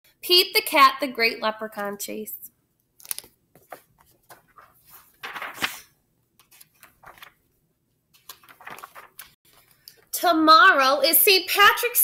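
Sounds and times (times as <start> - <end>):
paper rustling: 3.0 - 10.1.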